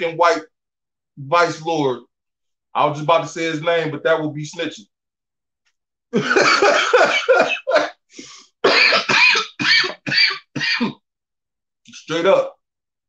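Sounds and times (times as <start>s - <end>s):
man coughing: 6.2s - 8.0s, 8.6s - 11.0s.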